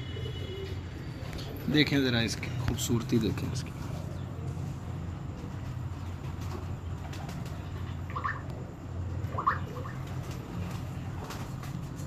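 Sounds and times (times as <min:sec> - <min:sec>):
pigeons cooing: 0:06.6 - 0:11.1.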